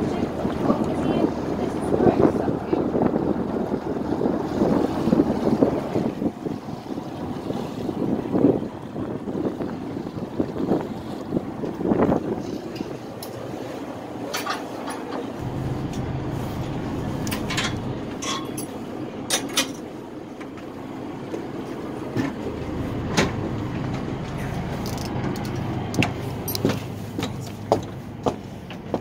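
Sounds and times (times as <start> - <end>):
ferry engine rumbling: 0.0 - 29.0
footsteps on metal steps: 26.0 - 29.0.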